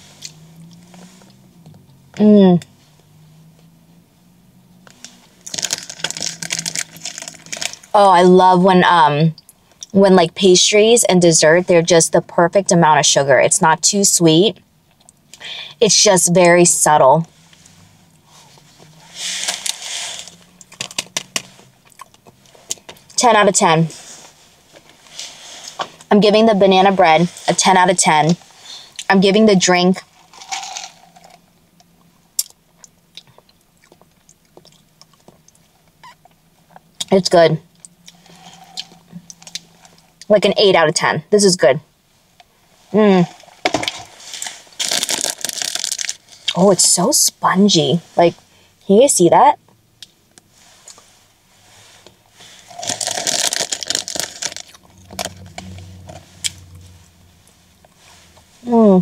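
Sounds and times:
plastic wrapper crinkling: 5.0s - 7.9s, 19.4s - 21.6s, 30.1s - 31.4s, 43.7s - 46.6s, 52.7s - 56.1s
faint low hum: 46.2s - 59.0s.

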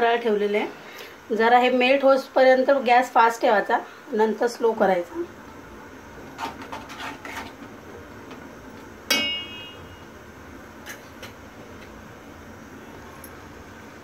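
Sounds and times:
metal spoon scraping a pot: 6.4s - 7.6s
sharp metallic clang: 9.1s - 10.0s.

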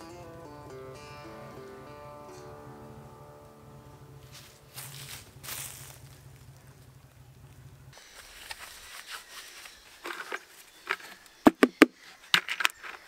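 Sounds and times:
faint background music: 0.0s - 13.0s
bucket scraping on gravel: 4.3s - 6.8s, 8.0s - 11.2s.

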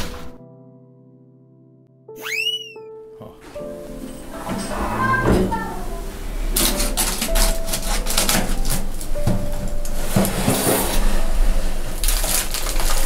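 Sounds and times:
roast meat sizzling and crackling: 6.2s - 13.0s
metal oven rack clicks: 6.6s - 10.3s.

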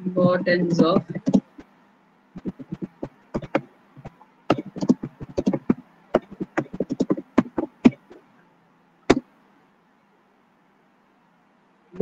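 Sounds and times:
keyboard typing: 0.3s - 1.7s, 2.4s - 8.2s.

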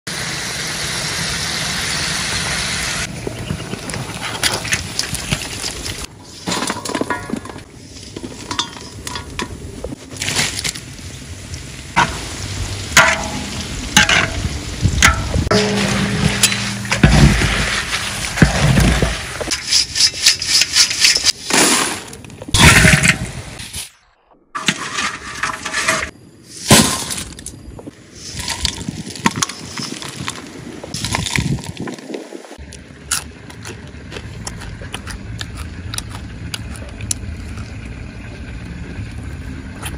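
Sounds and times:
metal ladle scraping a wok: 15.5s - 22.0s, 24.6s - 26.7s.

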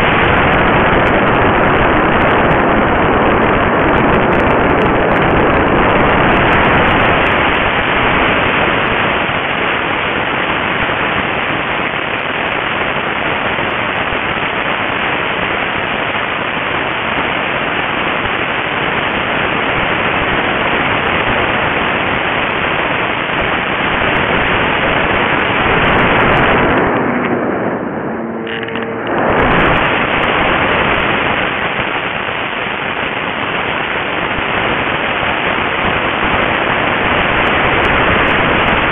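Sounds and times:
faint hum: 20.2s - 38.9s
wind and motor rushing: 23.9s - 32.0s.

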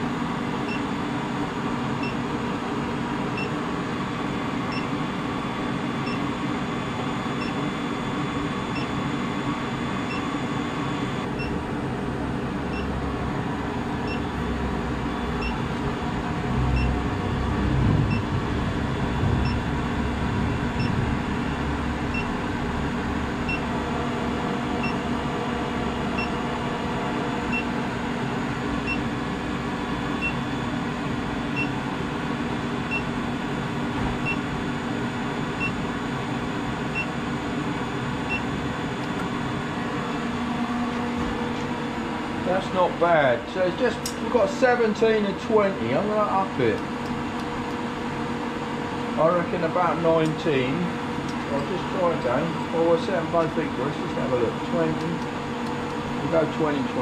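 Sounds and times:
induction heater hum and whine: 0.0s - 57.0s
low rumble: 15.9s - 27.5s.

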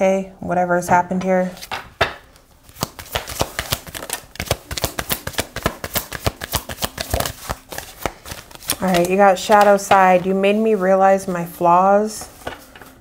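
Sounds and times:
cards being shuffled by hand: 1.6s - 11.6s.

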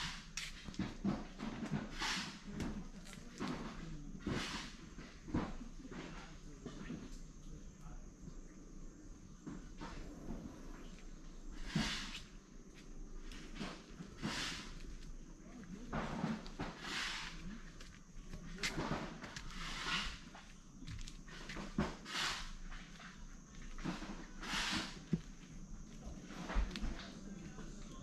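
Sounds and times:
footsteps crunching: 12.1s - 28.0s.

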